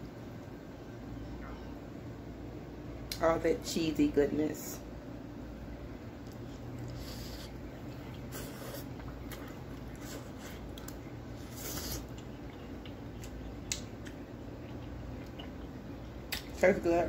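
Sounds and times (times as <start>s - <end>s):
low room hum: 0.0s - 17.0s
person chewing food: 6.3s - 16.5s
wet mouth noises: 6.3s - 16.5s.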